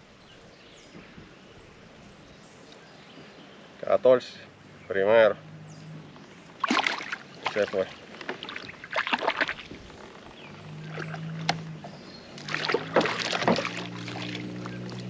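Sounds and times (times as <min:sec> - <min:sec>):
water splashing around kayak: 0:06.1 - 0:15.0.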